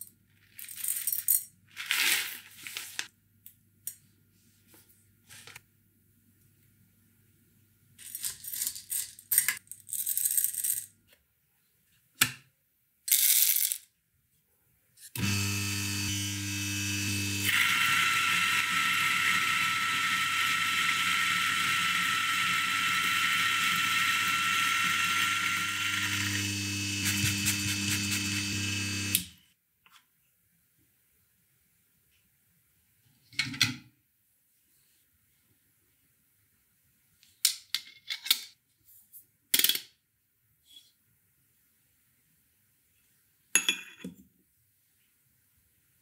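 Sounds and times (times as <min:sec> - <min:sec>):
coffee grinder motor whining: 0:15.2 - 0:29.4.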